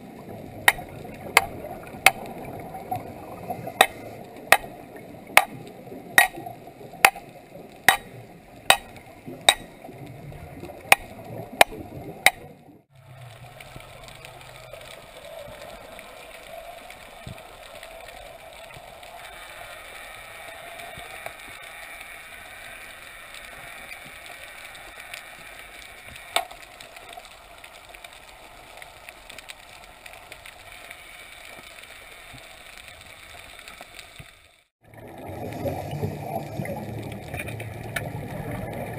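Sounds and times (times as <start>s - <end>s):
hammer striking metal underwater: 0.6s - 2.2s, 3.8s - 4.7s, 5.3s - 5.6s, 6.2s - 6.4s, 7.0s - 7.3s, 7.9s - 9.8s, 10.9s - 12.4s
underwater hiss: 13.1s - 26.4s.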